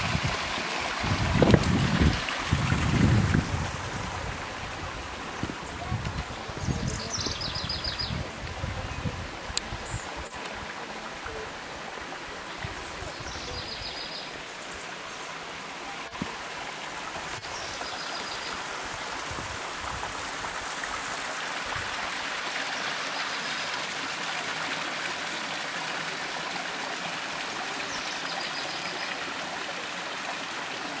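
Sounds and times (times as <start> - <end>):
wind buffeting microphone: 0.0 - 10.2
water trickling over rocks: 0.0 - 31.0.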